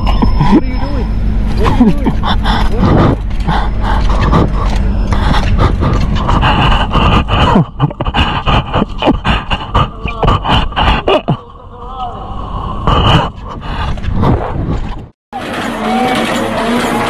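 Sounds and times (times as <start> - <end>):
wind rumbling on microphone: 12.4 - 15.2.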